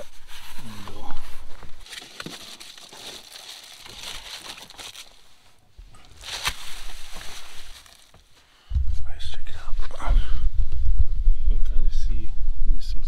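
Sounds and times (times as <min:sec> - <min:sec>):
cardboard rustling and scraping: 0:00.0 - 0:05.2, 0:06.0 - 0:08.4
sharp crinkle and click: 0:01.8 - 0:05.2, 0:06.0 - 0:08.3.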